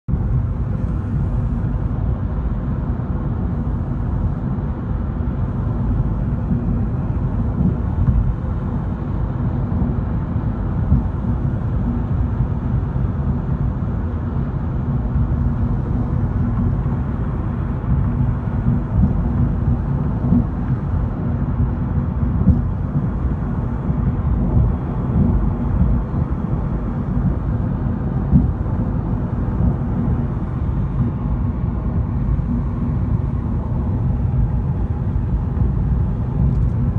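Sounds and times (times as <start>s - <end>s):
car road rumble inside cabin: 0.1s - 36.9s
road surface bumps: 5.5s - 9.0s, 15.1s - 36.9s.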